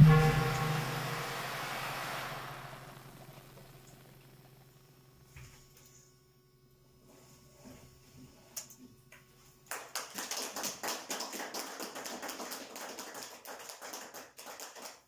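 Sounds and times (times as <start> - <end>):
audience applauding: 9.7 - 15.0.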